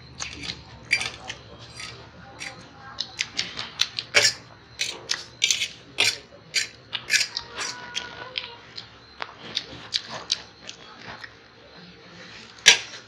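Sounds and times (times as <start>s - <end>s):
forks clicking on steel plates: 0.2s - 8.1s
chewing and mouth smacks: 0.2s - 11.6s.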